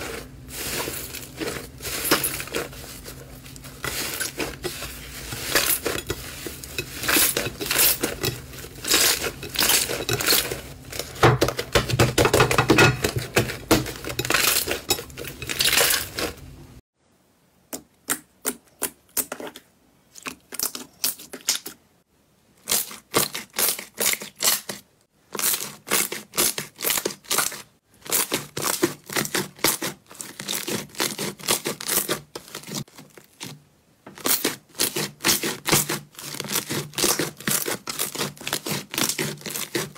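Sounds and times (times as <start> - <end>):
hands squishing slime: 0.0 - 16.4.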